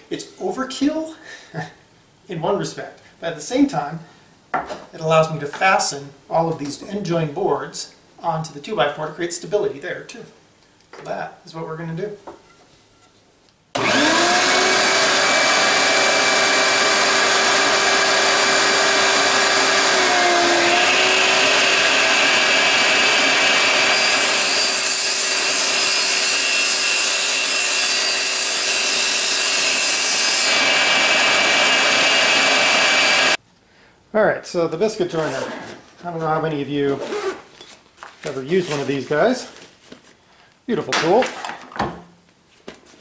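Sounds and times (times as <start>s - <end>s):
table saw whine: 13.8s - 33.4s.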